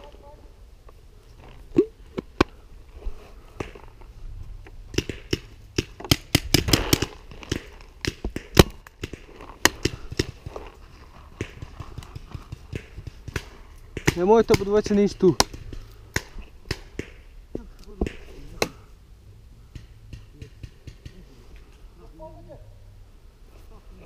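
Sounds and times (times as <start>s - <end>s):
paintball guns popping: 4.9s - 10.6s, 11.2s - 18.8s, 19.7s - 21.2s.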